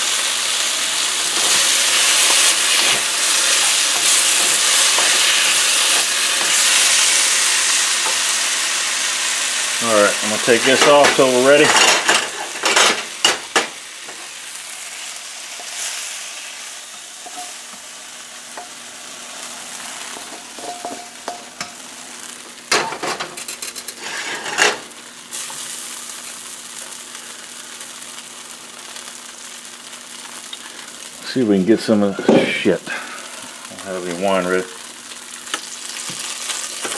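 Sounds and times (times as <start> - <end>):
wok sizzling: 0.0 - 36.9
wooden spoon scraping wok: 23.4 - 24.8.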